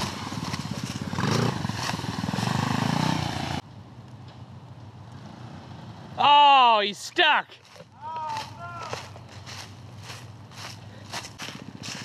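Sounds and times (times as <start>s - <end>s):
go-kart engine revving: 0.0s - 3.6s.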